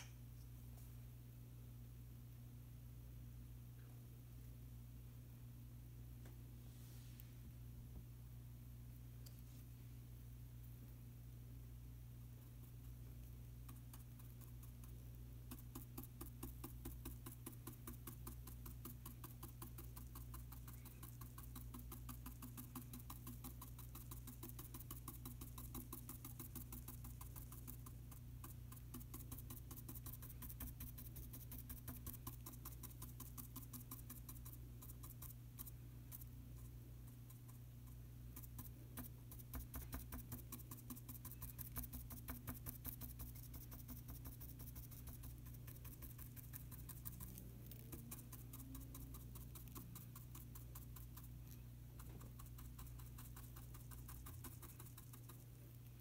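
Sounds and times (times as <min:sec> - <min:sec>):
low electrical hum: 0:00.0 - 0:56.0
paintbrush dabbing taps: 0:12.4 - 0:56.0.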